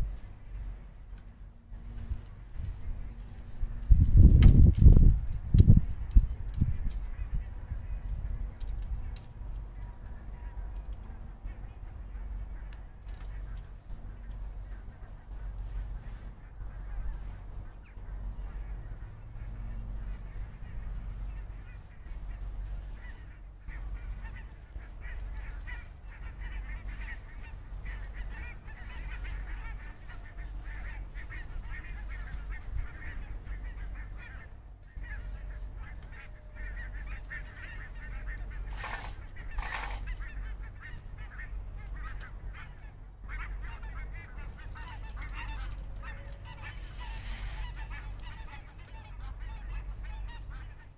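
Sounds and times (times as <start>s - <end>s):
wind rumble on microphone: 0.0s - 50.9s
faint bird calls: 6.1s - 50.9s
rustling: 21.5s - 40.3s, 44.4s - 49.2s.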